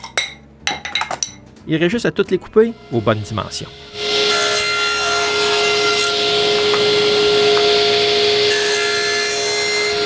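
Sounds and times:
table saw cutting wood: 2.6 - 10.0.

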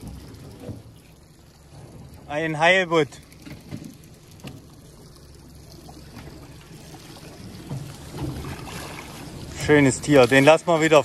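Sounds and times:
water lapping against boat: 0.0 - 11.0.

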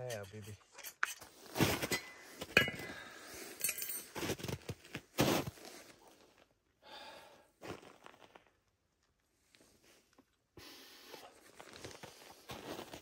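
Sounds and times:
footsteps crunching on snow: 4.2 - 6.1, 11.3 - 13.0.

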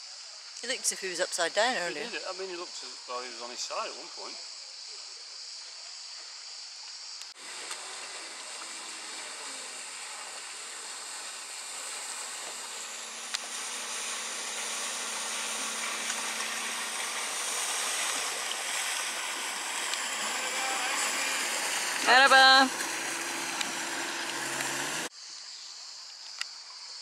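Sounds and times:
faint outboard motor hum: 7.4 - 25.1
water rushing: 7.4 - 25.1.

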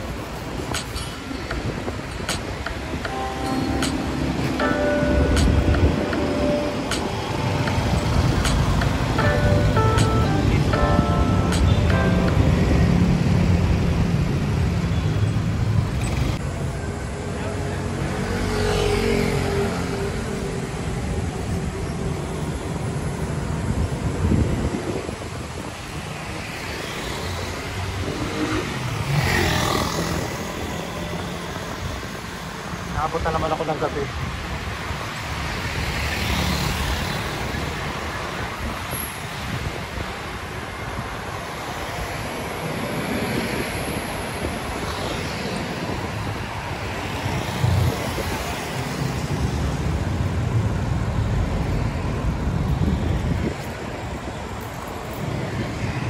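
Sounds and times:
cars going by: 0.0 - 56.0
road traffic rumbling: 0.0 - 56.0
wind buffeting microphone: 23.3 - 26.4, 42.4 - 56.0.

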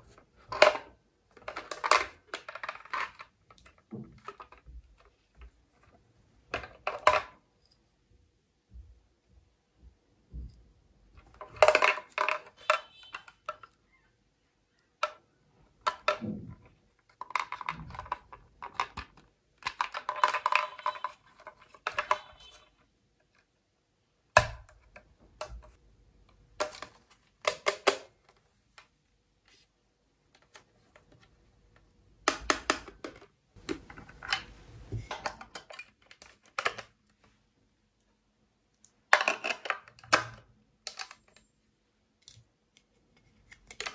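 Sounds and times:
plastic toy parts clicking: 0.1 - 5.1, 17.1 - 22.6, 26.6 - 28.1, 35.1 - 37.0, 38.8 - 41.5, 43.5 - 43.9.

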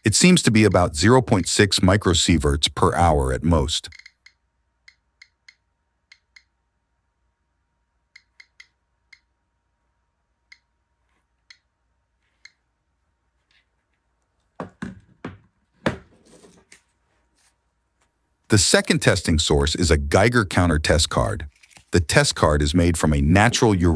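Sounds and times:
geiger counter clicking: 3.8 - 6.6, 8.2 - 9.3
counter knocking on wooden table: 14.6 - 16.1.

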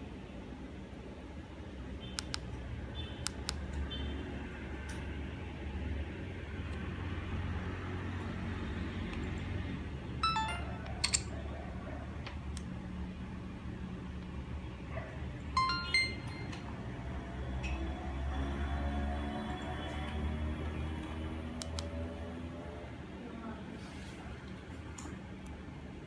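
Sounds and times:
short electronic chimes: 10.2 - 11.3, 15.6 - 16.6.

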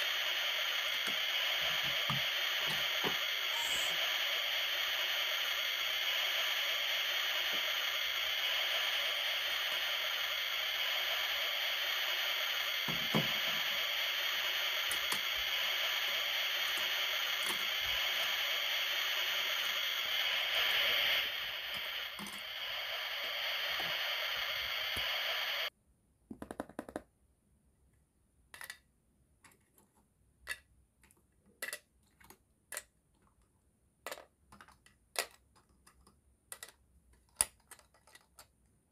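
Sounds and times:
sizzling hiss: 0.0 - 25.7
plastic toy pieces clicking: 30.4 - 33.0, 34.0 - 38.6.

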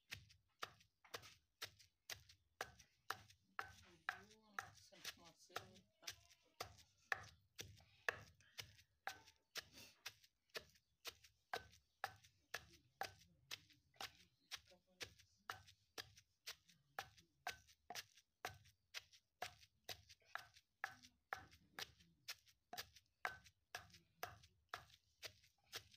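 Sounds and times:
pestle pounding in stone mortar: 0.0 - 25.9.

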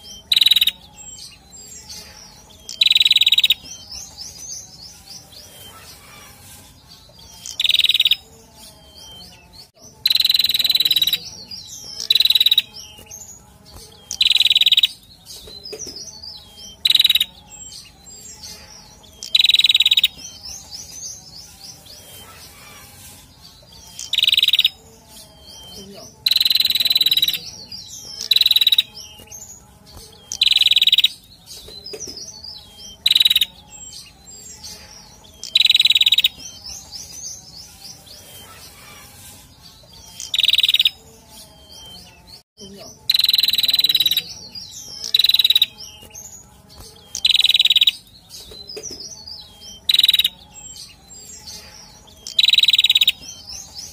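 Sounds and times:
strident high bird calls: 0.0 - 4.4, 5.4 - 8.3, 14.0 - 15.1, 16.6 - 20.6, 21.8 - 24.8, 25.6 - 29.5
buzzy chattering bird trills: 0.0 - 42.3, 42.9 - 53.9.

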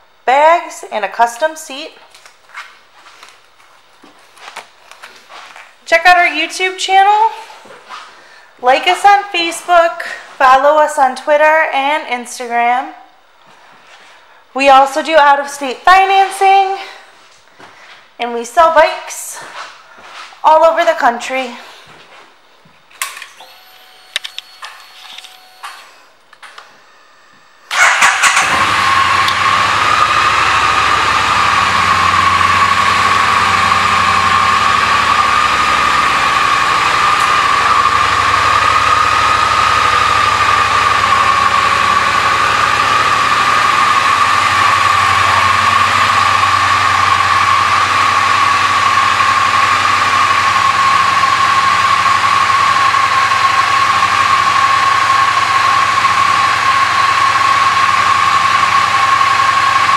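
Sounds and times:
motorcycle engine starting and idling: 27.7 - 59.9.

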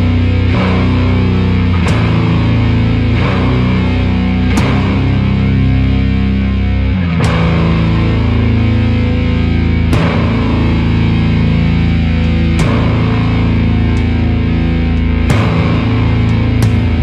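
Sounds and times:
doom metal with distorted guitars: 0.0 - 17.0.

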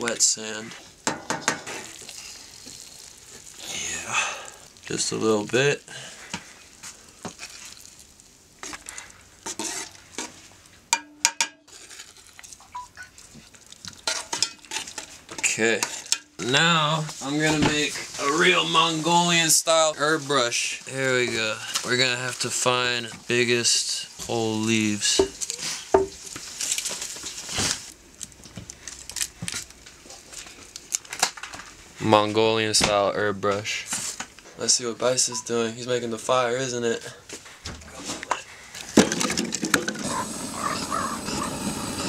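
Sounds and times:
light sizzle: 0.0 - 11.0, 11.7 - 32.4, 39.9 - 42.0
leaves and plastic packet rustling: 1.7 - 10.8, 20.0 - 31.5
metal spoon scraping a pot: 9.4 - 10.4.

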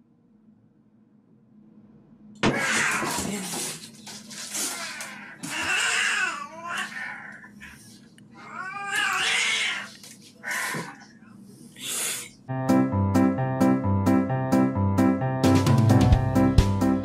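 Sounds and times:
cat yowling: 8.4 - 11.0.

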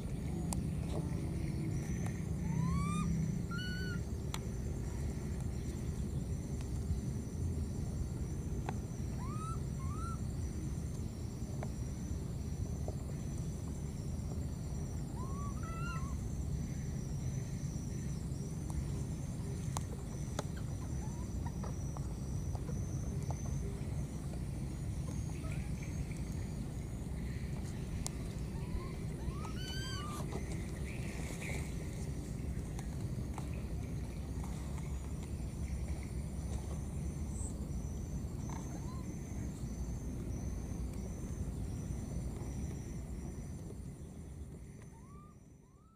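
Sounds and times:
high insect drone: 0.0 - 45.9
low steady rumble: 0.0 - 45.9
baby monkey squeaking: 28.6 - 30.2.

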